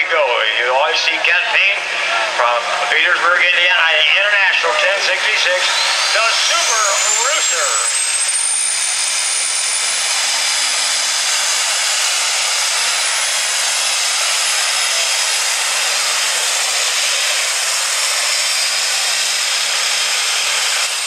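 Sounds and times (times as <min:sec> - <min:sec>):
high turbo whine: 0:00.0 - 0:21.0
tractor engine at full load: 0:00.0 - 0:21.0.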